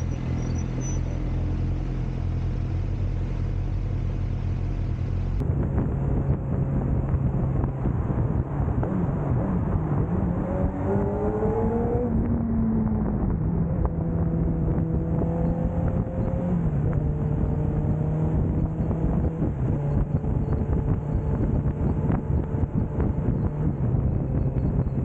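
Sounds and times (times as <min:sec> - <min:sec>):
motorcycle engine revving: 0:05.1 - 0:25.0
wind rushing: 0:05.4 - 0:25.0.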